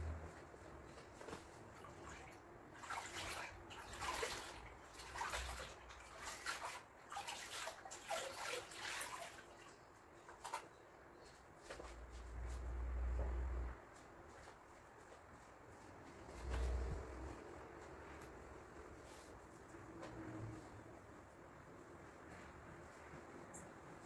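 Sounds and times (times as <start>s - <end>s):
water sloshing in a bucket: 1.0s - 11.9s.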